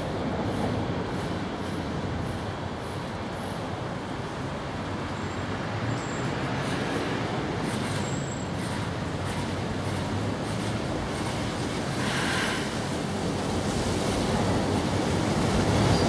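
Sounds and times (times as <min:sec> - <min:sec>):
even hiss: 0:11.1 - 0:16.0.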